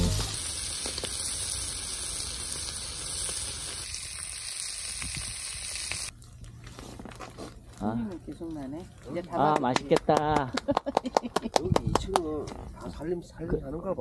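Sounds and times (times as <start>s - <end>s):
fish sizzling on griddle pan: 0.0s - 6.1s.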